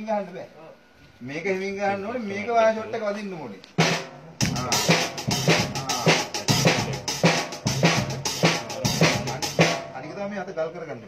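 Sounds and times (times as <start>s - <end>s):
bass drum and snare hits: 3.8s - 10.0s
hi-hat and cymbal strikes: 3.8s - 10.2s.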